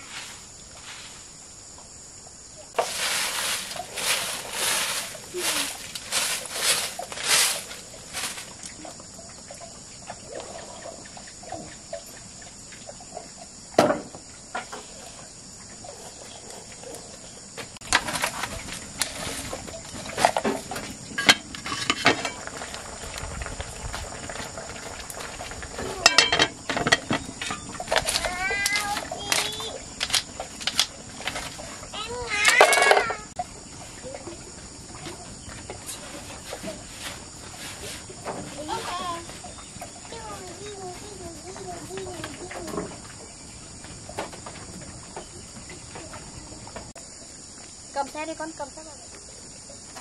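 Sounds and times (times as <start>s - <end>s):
rustling and scraping handling noise: 0.0s - 1.4s, 2.7s - 9.0s, 17.6s - 33.3s, 35.0s - 46.9s
insects chirring: 0.0s - 50.0s.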